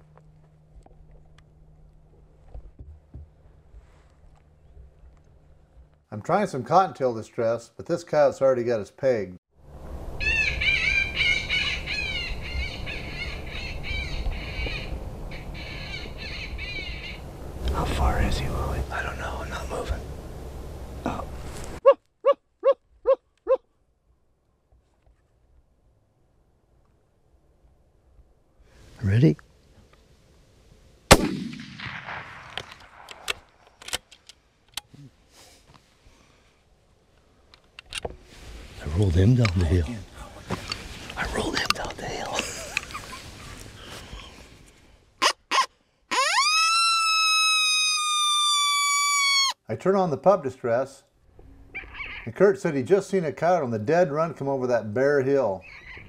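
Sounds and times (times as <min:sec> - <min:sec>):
rifle shot echoing: 0:31.1 - 0:33.6.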